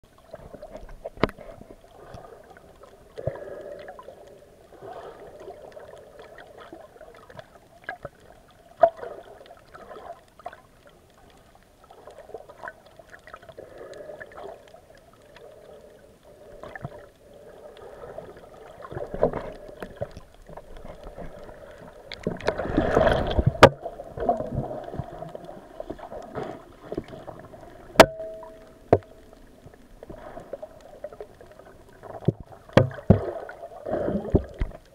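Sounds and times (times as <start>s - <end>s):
muffled underwater water noise: 0.0s - 34.9s
rush of water: 17.8s - 34.9s.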